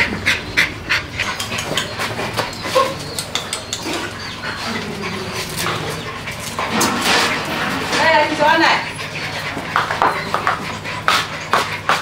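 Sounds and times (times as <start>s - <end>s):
puppy whimper: 0.0s - 6.6s
puppy claws clicking on concrete: 1.2s - 4.2s.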